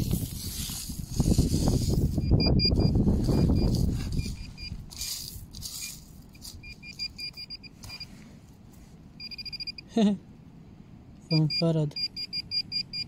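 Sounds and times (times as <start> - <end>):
pinpointer beeping: 2.2 - 4.8, 6.4 - 8.1, 9.2 - 9.9, 11.3 - 13.0
pebbles rustling: 3.1 - 7.2.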